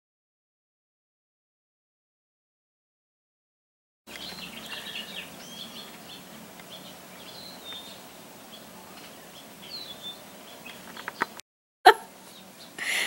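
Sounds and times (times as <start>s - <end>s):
songbirds chirping: 4.1s - 11.4s, 12.1s - 13.0s
faint steady hum: 4.1s - 13.0s.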